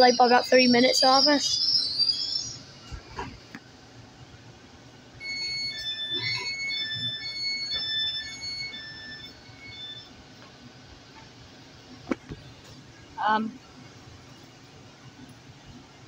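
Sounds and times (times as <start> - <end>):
train door warning beeps: 5.2 - 10.1.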